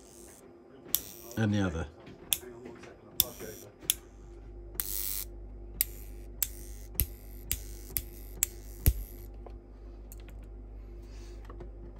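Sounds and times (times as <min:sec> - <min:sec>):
solenoid motor clicks: 0:00.0 - 0:01.4, 0:03.2 - 0:04.0, 0:04.8 - 0:09.4
faint steady hum: 0:00.0 - 0:11.9.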